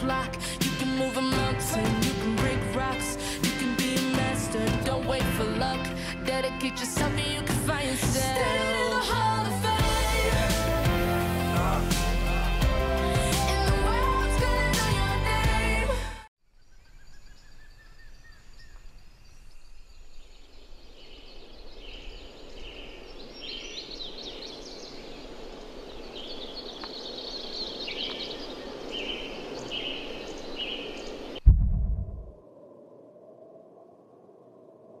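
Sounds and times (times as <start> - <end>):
forest hum: 8.5 - 35.0
birds calling: 16.6 - 31.4.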